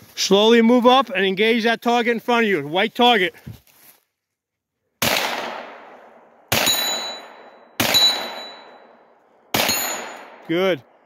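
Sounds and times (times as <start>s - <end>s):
gunshots with long echo: 5.0s - 11.0s
high metallic ring: 6.6s - 10.3s.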